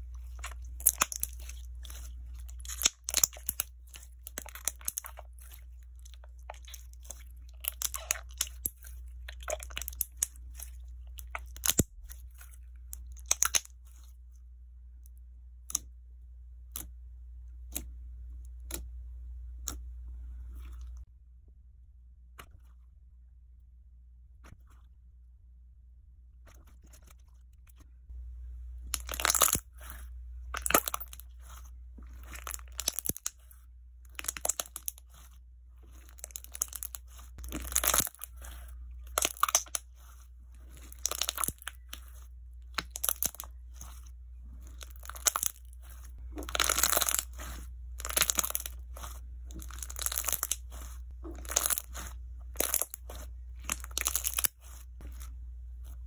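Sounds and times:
slime crackling and popping: 0:00.1 - 0:14.0, 0:28.9 - 0:33.5, 0:34.1 - 0:56.0.

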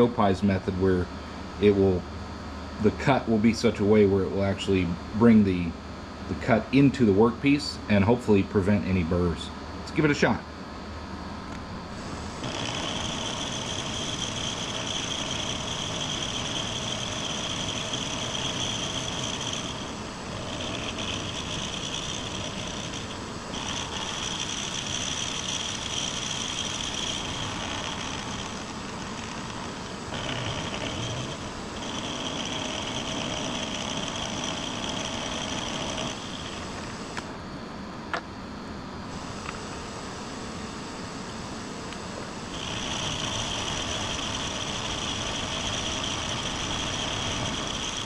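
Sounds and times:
steady machine hum with whine: 0:00.0 - 0:48.0
milling machine cutting metal: 0:11.9 - 0:37.3, 0:42.5 - 0:48.0.

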